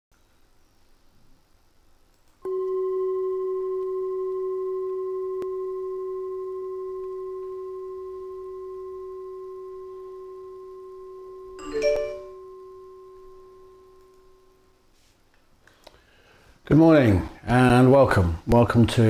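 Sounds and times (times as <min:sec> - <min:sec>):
singing bowl ringing: 0:02.4 - 0:14.8.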